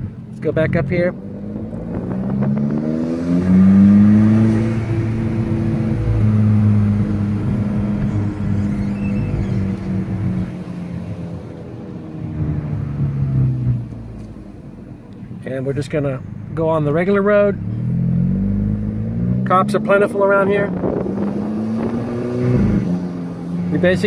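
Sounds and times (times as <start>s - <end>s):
car engine pulling from inside cabin: 1.0s - 15.1s.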